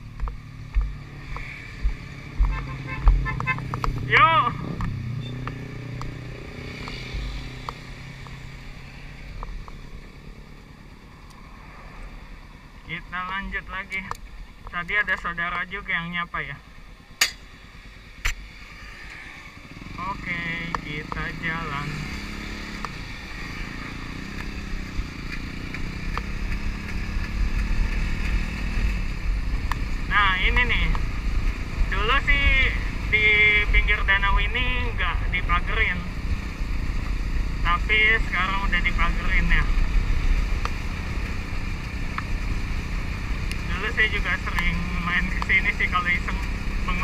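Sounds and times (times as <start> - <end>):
motorcycle engine at low revs: 0.0 - 47.0
light ticks: 4.8 - 6.2, 6.8 - 8.4, 22.7 - 23.0, 25.3 - 28.4, 43.4 - 43.7.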